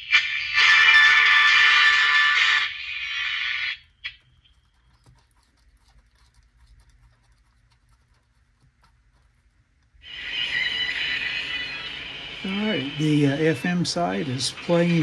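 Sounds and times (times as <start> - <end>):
radio broadcast from small speaker: 0.0 - 3.8, 10.0 - 15.0.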